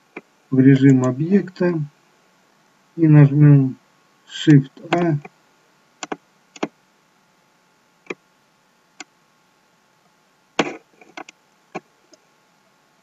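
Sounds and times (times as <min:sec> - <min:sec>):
mouse and keyboard clicks: 0:06.0 - 0:06.7, 0:10.6 - 0:11.4.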